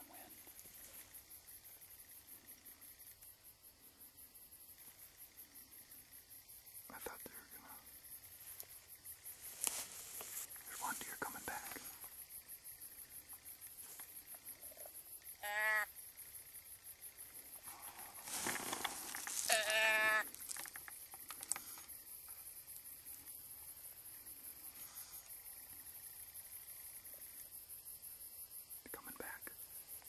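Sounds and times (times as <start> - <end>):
crickets chirring: 0.0 - 30.0
rustle of movement: 8.2 - 12.4, 17.4 - 24.0
deer call bleats: 15.4 - 15.9, 19.4 - 20.3.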